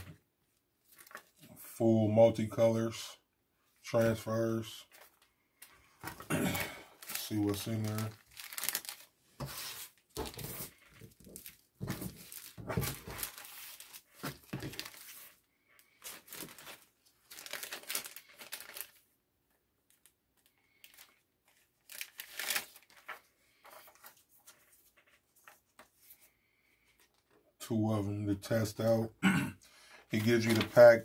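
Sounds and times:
plastic bags crinkling: 6.0 - 15.3, 16.0 - 19.0, 21.8 - 23.2.

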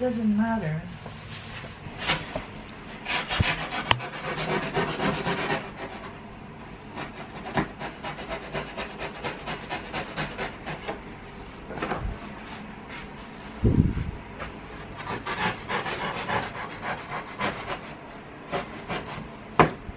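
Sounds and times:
box cutter sawing cardboard: 3.0 - 6.2, 6.9 - 11.0, 15.0 - 19.3.

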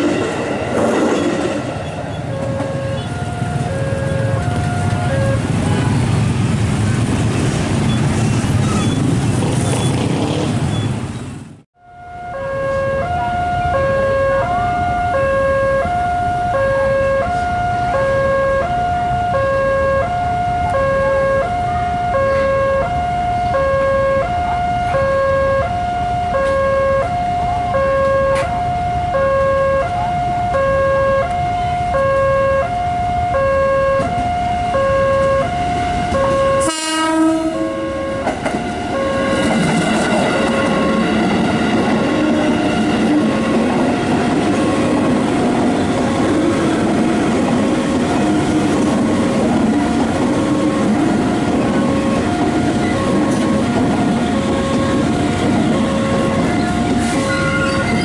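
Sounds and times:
train rumbling: 0.0 - 58.0
level-crossing two-tone alarm: 1.2 - 5.4, 11.8 - 45.0, 50.4 - 58.0.

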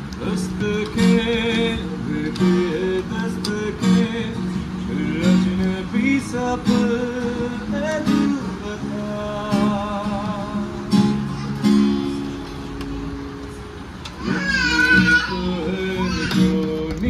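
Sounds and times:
acoustic guitar strumming chords: 0.0 - 17.0
person singing: 14.2 - 17.0.

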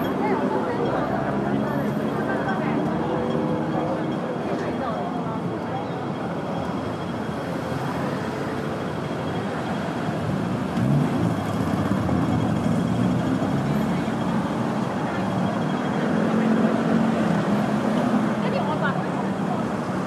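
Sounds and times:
busy street traffic: 0.0 - 20.0.

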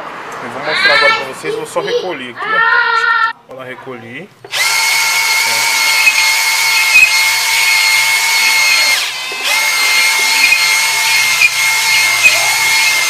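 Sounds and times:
cordless drill motor whine: 4.5 - 13.0.

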